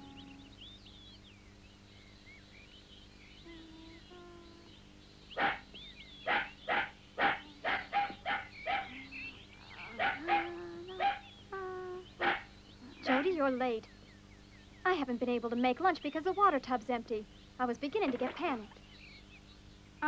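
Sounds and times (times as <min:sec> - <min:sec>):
dog barking: 0:05.4 - 0:09.0, 0:09.9 - 0:11.3, 0:12.2 - 0:12.5.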